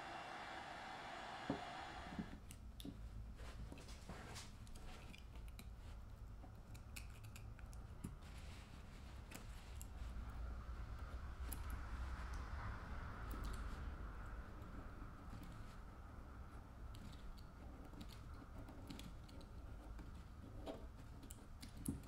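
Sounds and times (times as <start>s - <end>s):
low steady hum: 0.0s - 2.4s.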